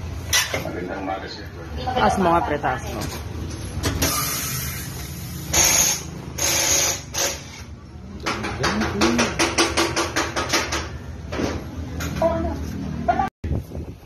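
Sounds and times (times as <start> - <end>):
compressed air hissing: 4.0 - 7.1.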